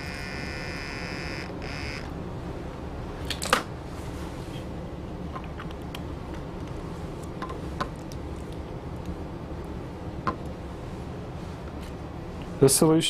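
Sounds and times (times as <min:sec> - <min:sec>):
pipette controller whining: 0:00.0 - 0:03.9.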